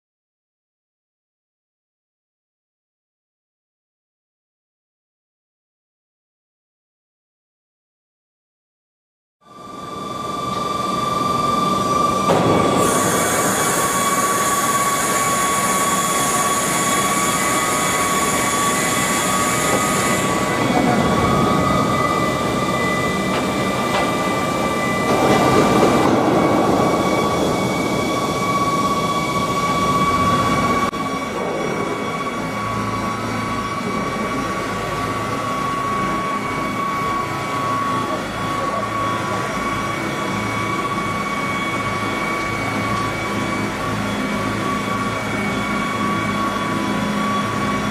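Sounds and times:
hydraulic system whine: 9.5 - 47.9
rushing noise of landing gear: 9.6 - 47.9.

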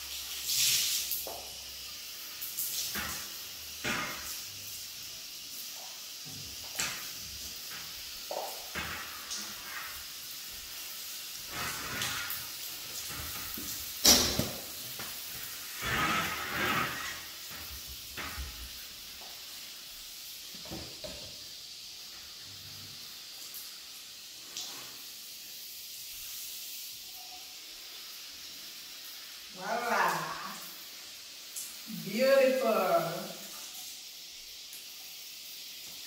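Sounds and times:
faint steady hiss: 0.0 - 36.0
wiping and rubbing glass: 11.4 - 13.8, 14.4 - 17.9.

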